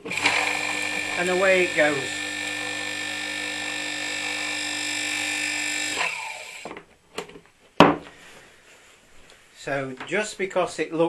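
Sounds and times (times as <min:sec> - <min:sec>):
pump motor humming and whining: 0:00.0 - 0:06.8.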